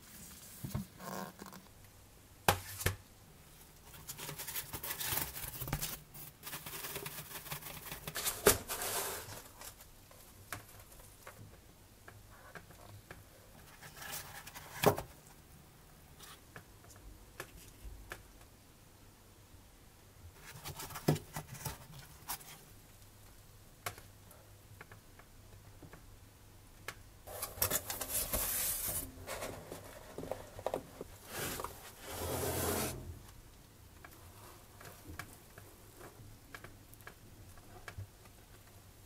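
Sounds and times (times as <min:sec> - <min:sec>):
foam packaging rustling: 0:27.3 - 0:33.0.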